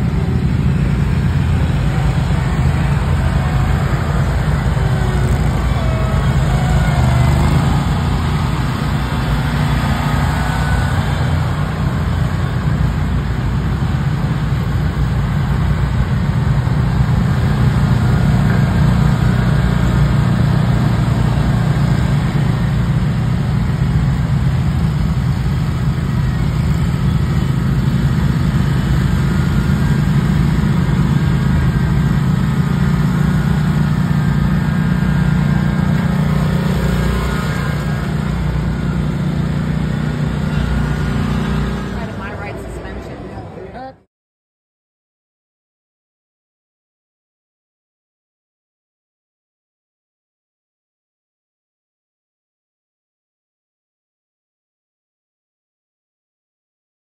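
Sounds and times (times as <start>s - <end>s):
mower engine running: 0.0s - 43.6s.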